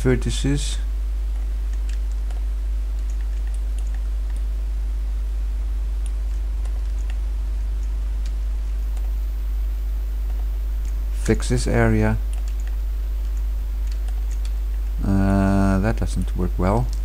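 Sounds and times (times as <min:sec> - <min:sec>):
steady low hum: 0:00.0 - 0:17.0
keyboard presses and mouse clicks: 0:01.3 - 0:04.5, 0:12.3 - 0:14.8.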